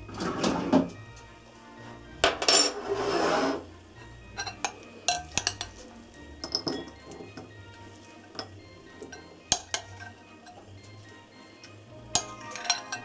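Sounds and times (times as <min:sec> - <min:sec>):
soft background music: 0:00.0 - 0:13.0
spoon scraping glass bowl: 0:02.4 - 0:03.7, 0:12.2 - 0:13.0.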